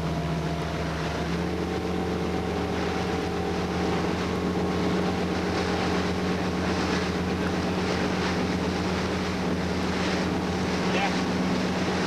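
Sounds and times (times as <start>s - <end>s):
motorboat engine droning: 0.0s - 12.0s.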